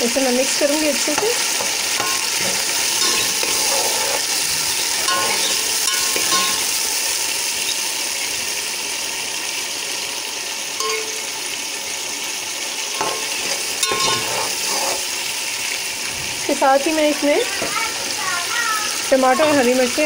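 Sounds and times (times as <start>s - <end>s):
food sizzling and bubbling in oil: 0.0s - 20.0s
spoon clinking against pot: 1.9s - 4.2s, 5.0s - 6.8s, 10.8s - 11.4s, 13.0s - 15.0s, 19.4s - 19.8s.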